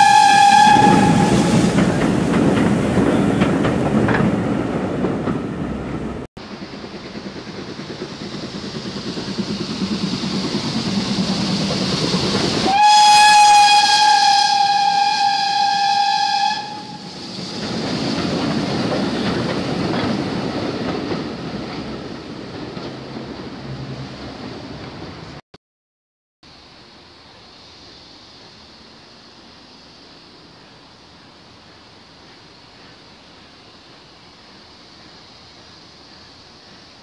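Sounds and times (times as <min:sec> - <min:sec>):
steam whistle blast: 0:00.0 - 0:01.7, 0:12.6 - 0:17.3
train rumble and wheel clicks: 0:00.0 - 0:25.4.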